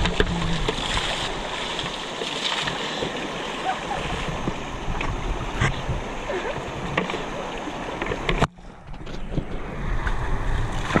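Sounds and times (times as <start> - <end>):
river water splashing: 0.0 - 11.0
wind noise on microphone: 3.9 - 7.0.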